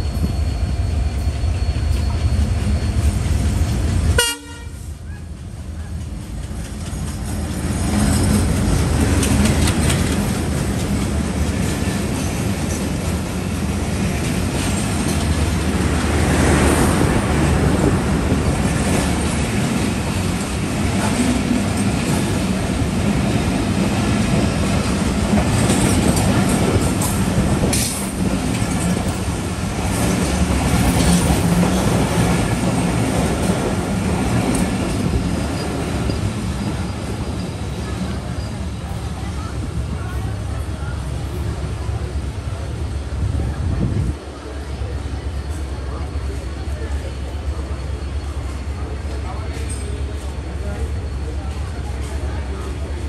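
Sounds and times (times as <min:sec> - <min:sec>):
locomotive engine passing: 0:05.4 - 0:50.9
train wheels clattering over rail joints: 0:05.9 - 0:38.5.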